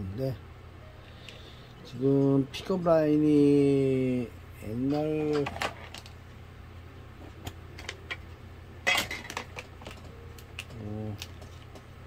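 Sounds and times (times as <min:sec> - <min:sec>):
objects clicking and clattering: 0:08.8 - 0:11.9.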